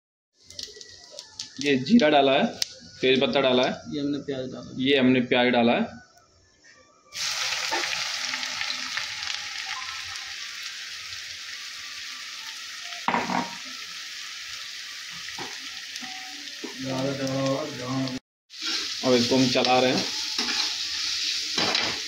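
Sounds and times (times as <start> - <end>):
onions sizzling in hot oil: 7.2 - 22.0.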